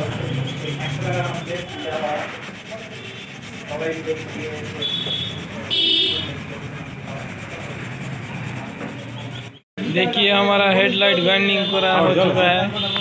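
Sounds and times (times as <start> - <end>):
sanding plastic: 0.0 - 9.6.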